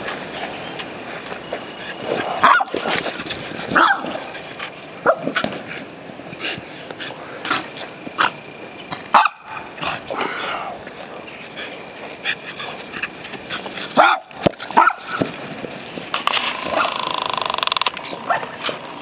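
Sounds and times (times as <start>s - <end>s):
dog barking and yipping: 2.4s - 2.9s, 3.7s - 4.3s, 9.1s - 9.7s, 13.9s - 15.3s, 16.6s - 17.1s, 18.1s - 18.6s.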